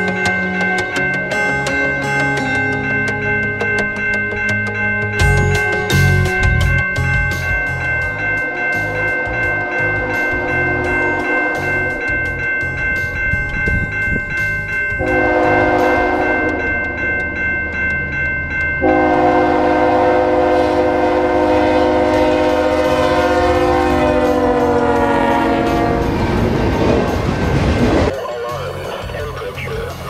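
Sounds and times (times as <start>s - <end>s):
level-crossing warning bell: 0.0s - 30.0s
locomotive air horn: 9.6s - 12.0s, 15.0s - 16.7s, 18.8s - 26.5s.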